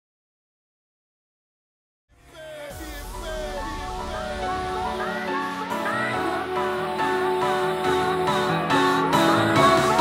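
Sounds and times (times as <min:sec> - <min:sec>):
steady low drone: 0:02.1 - 0:06.9.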